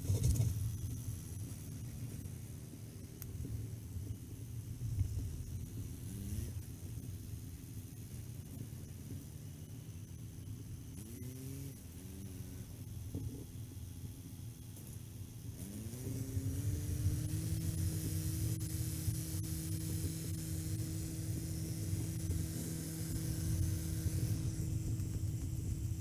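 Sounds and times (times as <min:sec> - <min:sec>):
tractor engine revving: 0:04.8 - 0:07.2, 0:10.9 - 0:13.4, 0:15.5 - 0:26.0.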